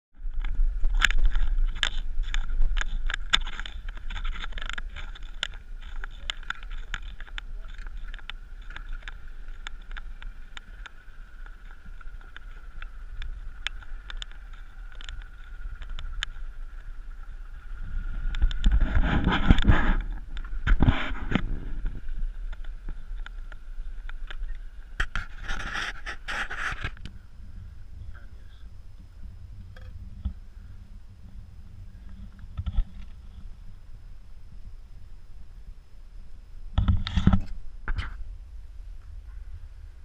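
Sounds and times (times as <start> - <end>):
steady low hum: 0.1 - 40.0
knocks and scrapes of boat gear: 18.4 - 23.0, 24.4 - 27.1.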